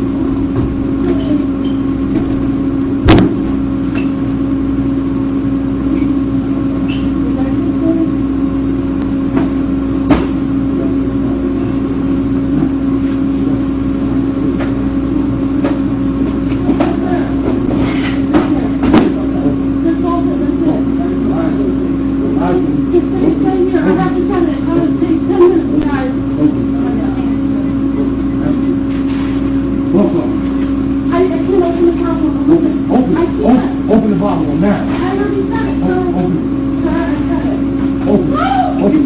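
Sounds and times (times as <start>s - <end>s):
low machine hum: 0.0s - 39.0s
sharp knock: 3.0s - 3.5s.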